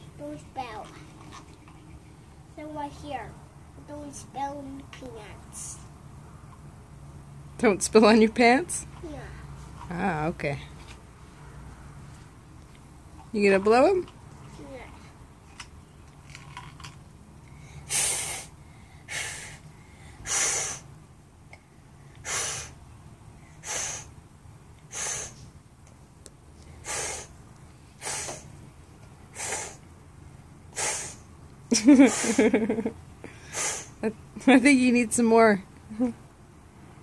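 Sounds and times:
child blowing puffs of air: 17.5 - 21.0, 22.0 - 22.8, 23.4 - 24.2, 24.9 - 25.5, 26.7 - 28.6, 29.3 - 29.9, 30.7 - 31.3, 31.9 - 32.6, 33.2 - 34.0.

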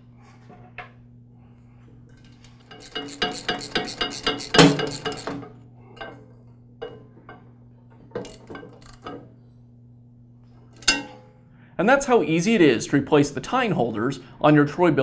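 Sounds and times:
metal parts clinking and rattling: 2.2 - 5.4.

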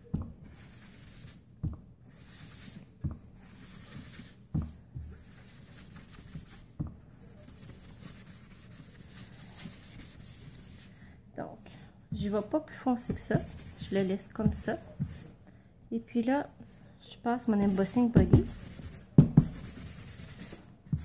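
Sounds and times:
sponge rubbing on cardstock: 0.4 - 1.4, 2.1 - 4.4, 5.0 - 10.9, 12.1 - 12.5, 13.1 - 15.3, 17.6 - 21.0.

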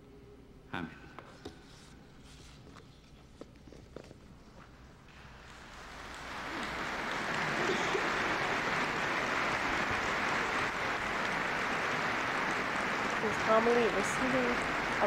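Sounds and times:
crowd applauding: 5.6 - 15.0.

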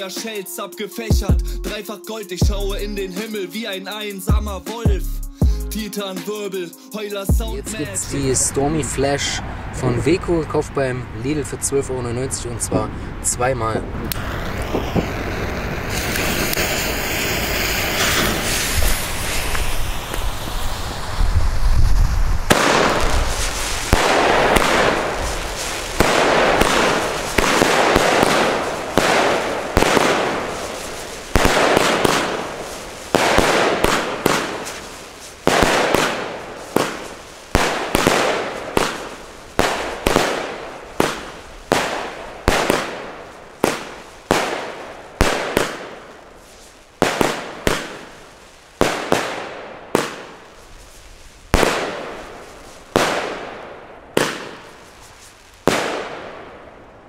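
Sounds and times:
firework shots: 14.0 - 57.0
hissing spinning firework whirls: 14.1 - 53.6, 54.2 - 56.2.

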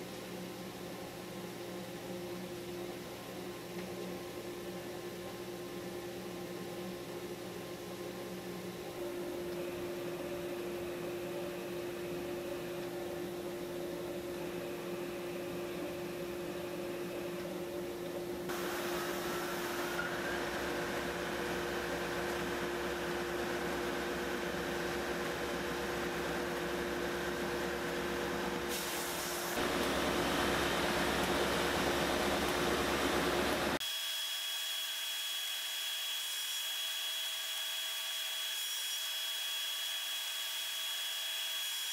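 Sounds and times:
belt sander humming: 9.0 - 28.7, 29.5 - 33.8.

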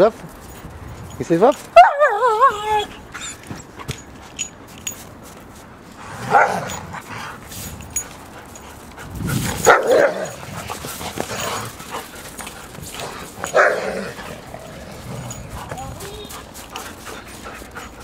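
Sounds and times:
dog barking deep woofs: 6.2 - 6.7, 9.6 - 10.5, 13.5 - 14.2.

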